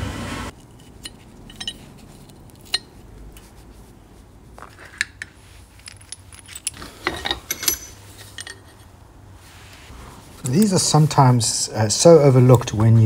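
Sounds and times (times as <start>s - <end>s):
metal parts clinking: 0.6s - 3.0s, 4.7s - 8.8s.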